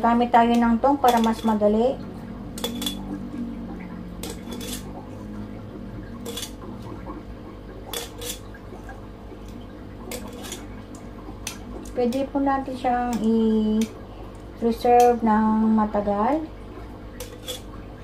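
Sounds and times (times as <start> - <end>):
metal tongs clinking on glass: 1.0 - 1.6, 2.6 - 3.2, 4.2 - 4.9, 6.2 - 6.6.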